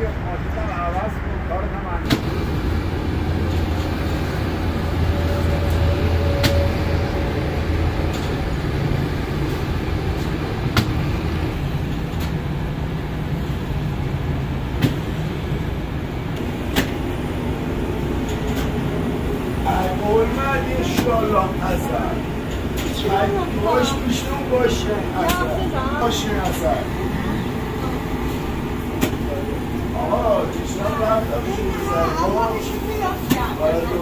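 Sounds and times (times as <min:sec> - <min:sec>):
oven machinery humming: 0:02.1 - 0:34.0.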